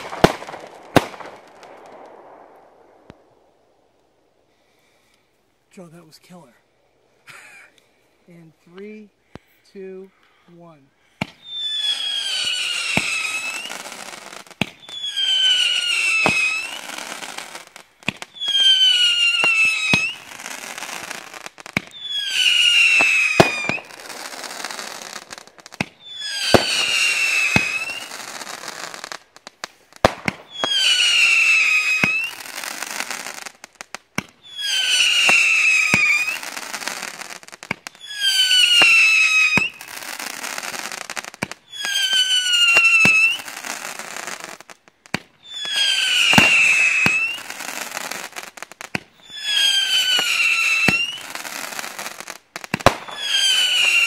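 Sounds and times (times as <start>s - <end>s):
firework pops: 0.0s - 3.2s, 11.2s - 11.4s, 12.9s - 13.8s, 14.5s - 15.5s, 16.2s - 17.4s, 18.0s - 18.5s, 19.4s - 22.0s, 22.8s - 23.9s, 25.7s - 26.9s, 29.2s - 30.8s, 33.5s - 34.4s, 35.2s - 36.8s, 37.6s - 38.0s, 38.6s - 43.4s, 44.8s - 54.0s
firework falling whistle: 11.2s - 29.0s, 30.0s - 33.4s, 34.2s - 43.9s, 45.1s - 54.0s.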